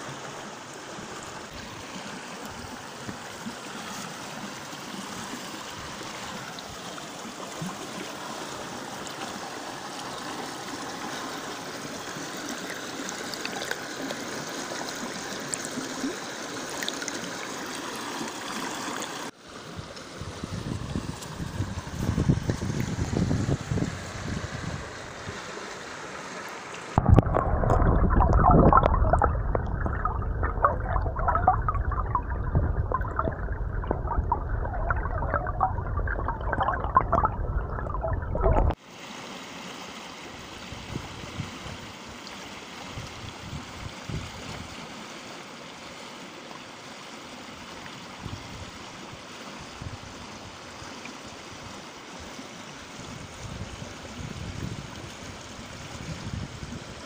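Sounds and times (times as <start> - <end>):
river rushing over stones: 27.0 - 40.5.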